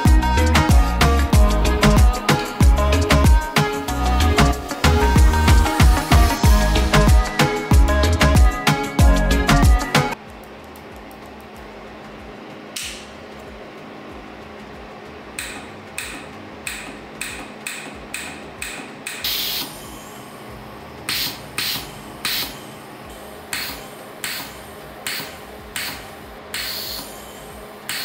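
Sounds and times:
short gas hiss: 19.3 - 20.2.

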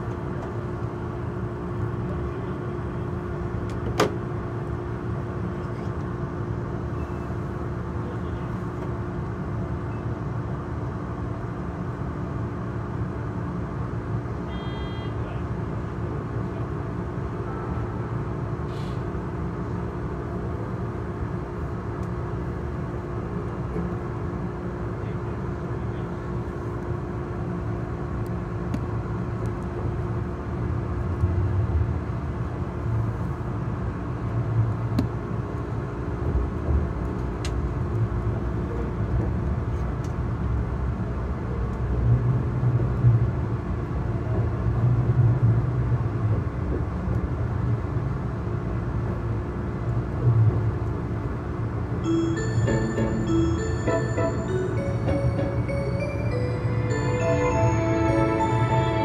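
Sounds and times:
electric train equipment hum: 50.8 - 59.0
steady tone: 52.0 - 59.0.

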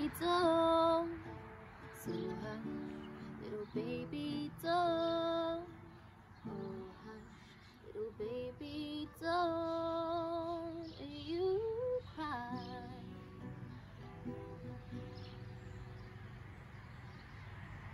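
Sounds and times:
woman singing with vibrato: 0.0 - 1.4, 2.0 - 5.8, 6.4 - 13.4
acoustic guitar: 0.0 - 17.9.

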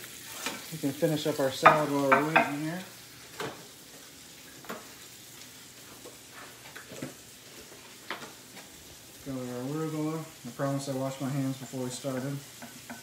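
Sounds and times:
steak sizzling in skillet: 0.0 - 13.0.

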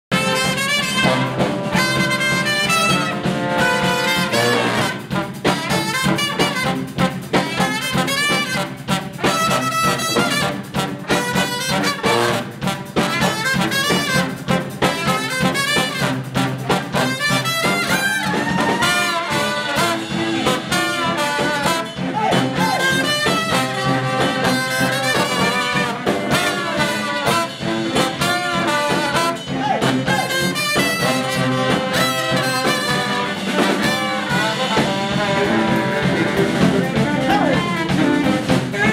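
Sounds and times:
brass band playing: 0.1 - 38.9
drum kit beat: 0.1 - 38.9
sousaphone bass line: 0.1 - 38.9.

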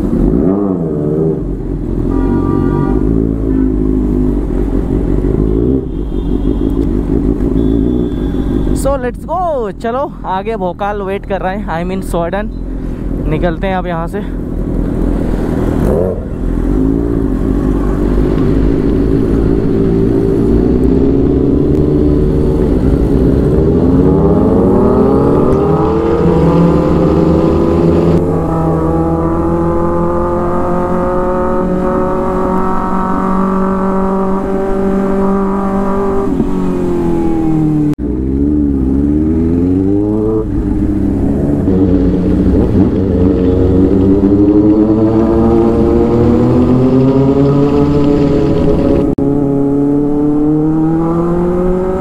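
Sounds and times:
motorcycle engine accelerating: 14.7 - 52.0.

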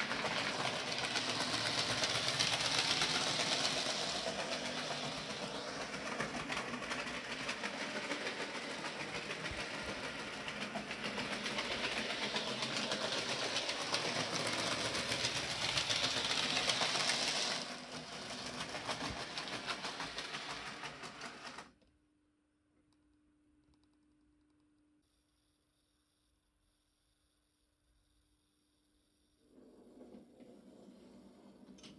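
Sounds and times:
model train motor whirring: 0.0 - 21.7
wheels rattling over track: 0.0 - 21.7.

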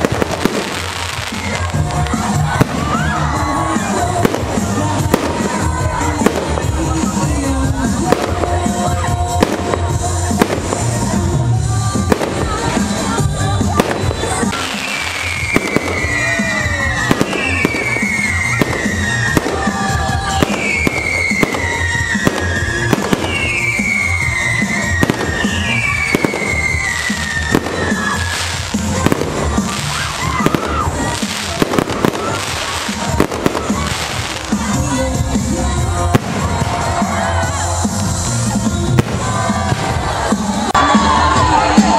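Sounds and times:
firework shell bursts and crackle: 0.0 - 7.4, 8.0 - 11.2, 11.9 - 35.2, 36.0 - 40.7
firework sharp bangs: 12.0 - 34.6, 36.1 - 37.1.

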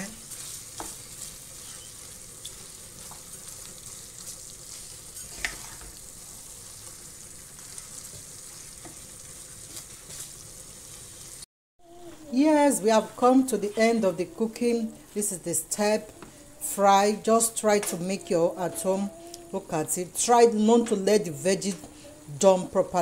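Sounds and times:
wooden spoon stirring: 0.0 - 11.0
food sizzling in a frying pan: 0.0 - 11.5, 12.4 - 23.0.

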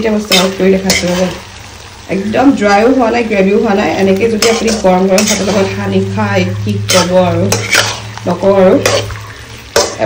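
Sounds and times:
light sizzle from pan: 0.0 - 10.0
metal spatula scraping a pan: 0.2 - 1.4, 3.7 - 10.0.

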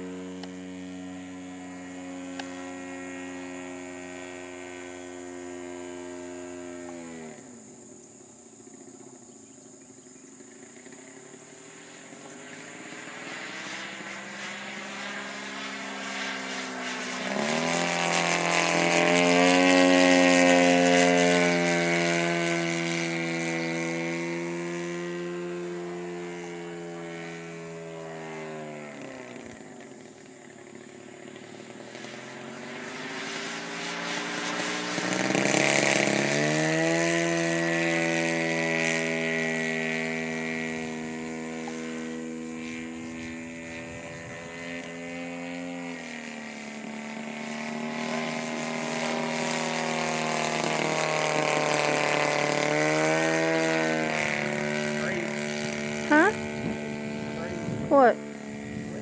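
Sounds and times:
model airplane engine and propeller: 0.0 - 59.0.

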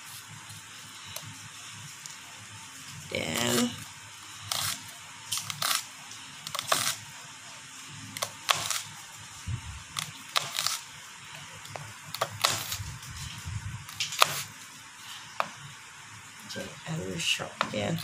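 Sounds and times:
knife chopping on cutting board: 11.7 - 12.8.

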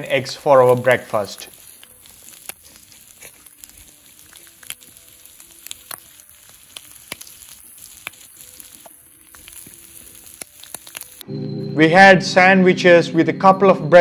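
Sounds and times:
bacon and eggs sizzling: 0.0 - 11.2
fat popping and crackling: 0.0 - 11.2.

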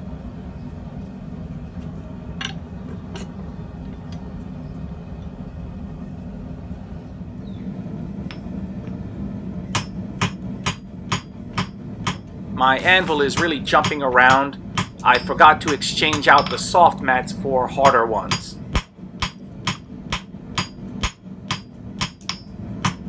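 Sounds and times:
steady low hum: 0.0 - 23.0
hammer striking steel on anvil: 9.7 - 12.3, 13.1 - 17.0, 17.8 - 23.0.

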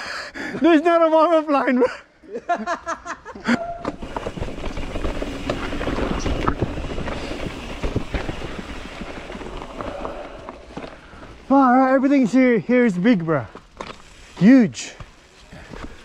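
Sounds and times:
bike tyres rolling on dirt: 3.5 - 16.0
bike clicks and rattles: 3.8 - 16.0.

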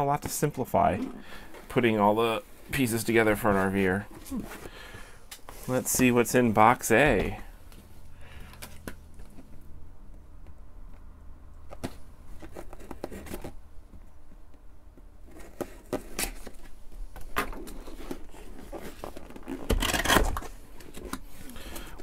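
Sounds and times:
tape tearing: 15.2 - 21.6
scissors scraping tape and card: 17.5 - 21.2.

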